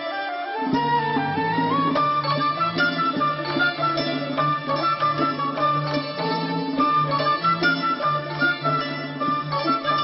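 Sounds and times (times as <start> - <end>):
plucked-string melody: 0.0 - 10.0.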